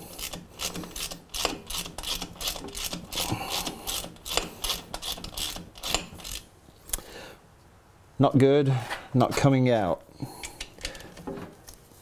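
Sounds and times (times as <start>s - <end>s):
socket ratchet clicking: 0.2s - 6.4s.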